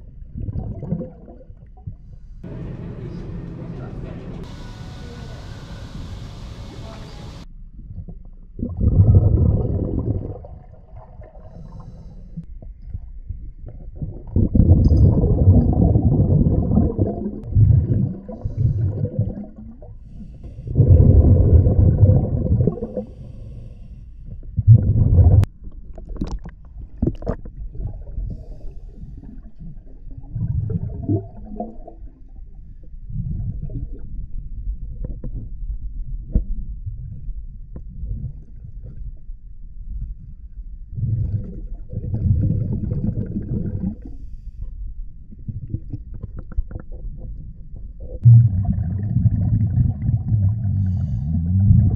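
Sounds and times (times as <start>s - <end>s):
diver exhaling bubbles underwater: 0.3s - 1.6s, 8.6s - 12.1s, 13.7s - 23.6s, 24.6s - 25.5s, 29.2s - 32.2s, 40.9s - 44.2s, 48.0s - 51.9s.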